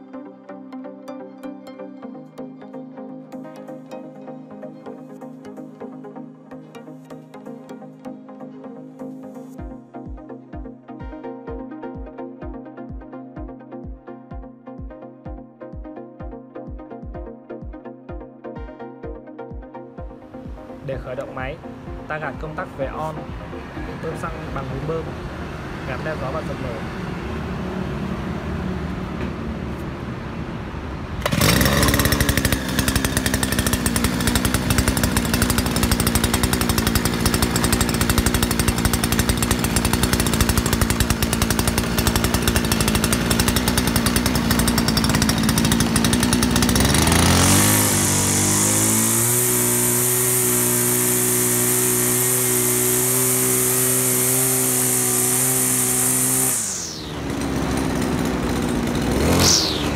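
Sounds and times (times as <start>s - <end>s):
brush-cutter engine running: 20.3s - 30.1s, 31.1s - 59.9s
trimmer head hissing: 31.2s - 59.9s.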